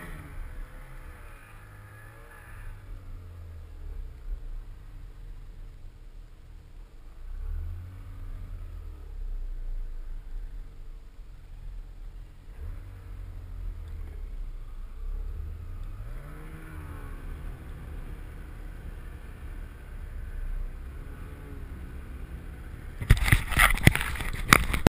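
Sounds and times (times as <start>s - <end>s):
rough noise on microphone: 0.0s - 24.9s.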